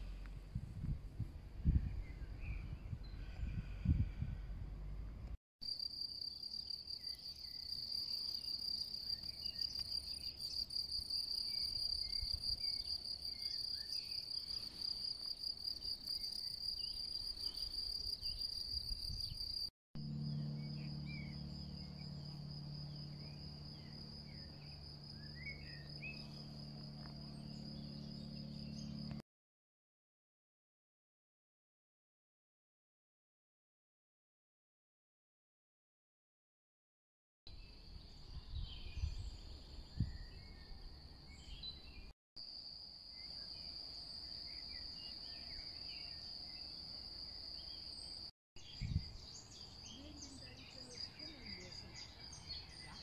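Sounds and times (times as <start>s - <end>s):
low steady hum: 0.0s - 5.4s, 20.0s - 29.2s.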